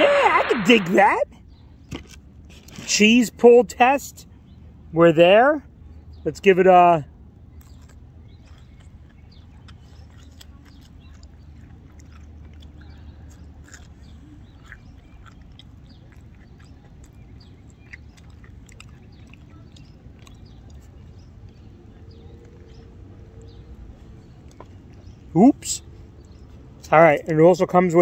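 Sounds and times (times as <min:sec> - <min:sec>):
person chewing crunchy food: 0:07.6 - 0:25.1.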